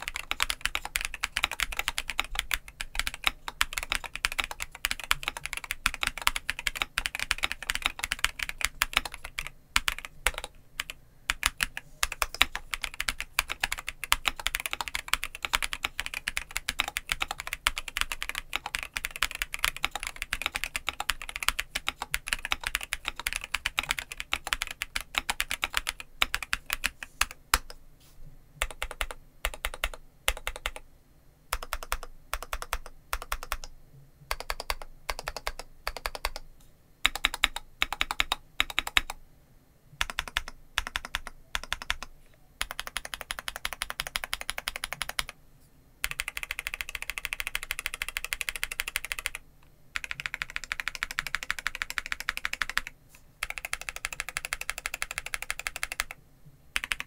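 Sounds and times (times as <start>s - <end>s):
typing on mechanical keyboard: 0.0s - 27.8s, 28.6s - 30.8s, 31.5s - 33.7s, 34.3s - 36.4s, 37.0s - 39.2s, 40.0s - 45.4s, 46.0s - 49.4s, 50.0s - 56.2s, 56.8s - 57.0s.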